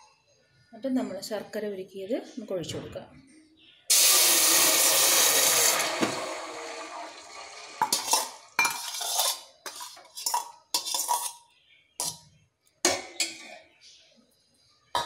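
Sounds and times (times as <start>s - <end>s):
syrup pouring into a steel pot: 3.9s - 10.3s
metal vessel clinking on pot rim: 7.8s - 11.4s.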